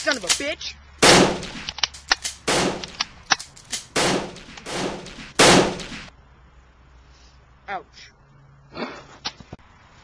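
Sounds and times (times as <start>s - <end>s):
loud gunshots: 1.0s - 1.7s, 2.5s - 3.0s, 3.9s - 6.1s
sharp clicks: 1.0s - 6.1s.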